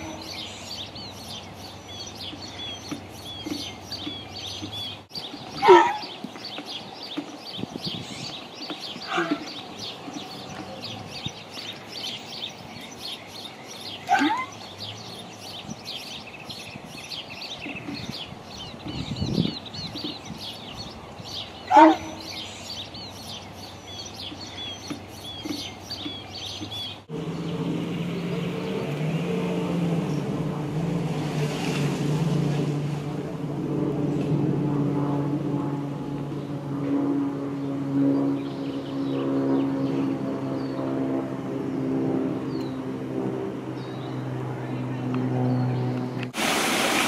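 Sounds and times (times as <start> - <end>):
birds chirping and singing: 0.0 - 30.4
steady low drone: 20.8 - 46.4.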